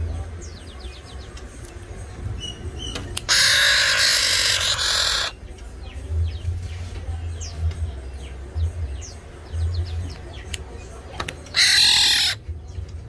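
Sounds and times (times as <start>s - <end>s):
bird harsh rasping call: 2.4s - 5.5s, 11.5s - 12.5s.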